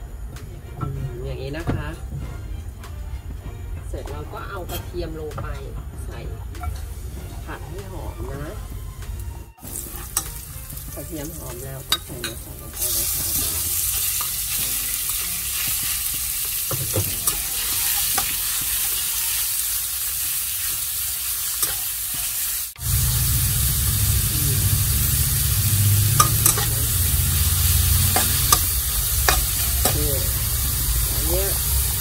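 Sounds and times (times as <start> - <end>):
meat sizzling in a wok: 6.6 - 32.0
metal spatula scraping pan: 11.8 - 20.8, 21.4 - 22.4, 26.1 - 30.5
low hum: 22.8 - 32.0.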